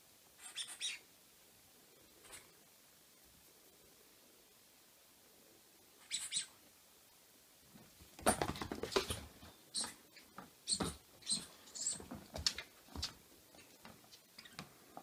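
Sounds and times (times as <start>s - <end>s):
puppy squeaking: 0.4s - 1.0s, 9.7s - 10.0s, 10.7s - 12.1s
paws skittering on wooden floor: 10.7s - 14.6s.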